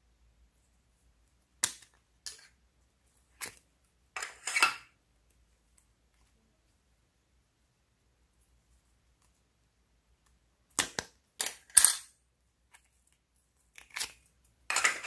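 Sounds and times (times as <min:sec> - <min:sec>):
plastic mold clicking and crackling: 0:10.2 - 0:12.1, 0:12.7 - 0:15.0.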